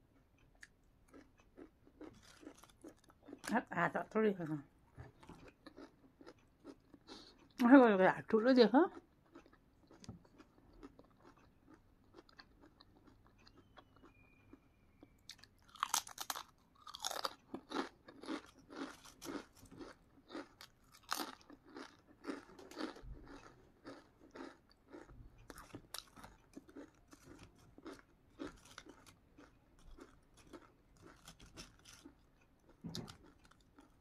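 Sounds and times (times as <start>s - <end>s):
crunching chips: 1.1s - 3.6s, 5.2s - 7.4s, 15.0s - 34.0s.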